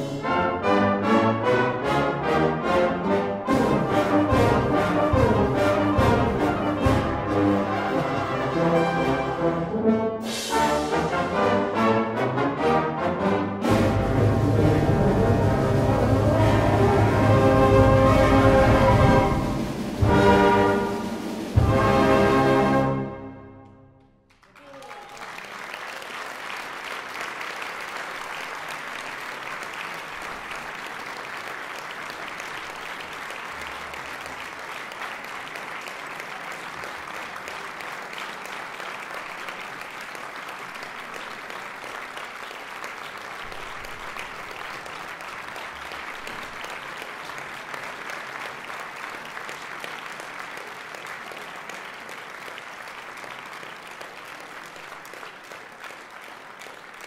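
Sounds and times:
audience applauding: 3.5 - 9.4, 24.3 - 57.0.

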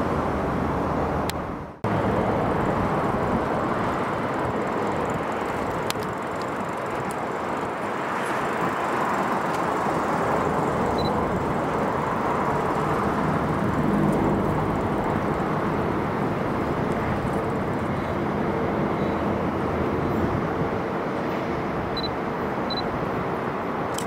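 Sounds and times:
road traffic noise: 0.0 - 24.0.

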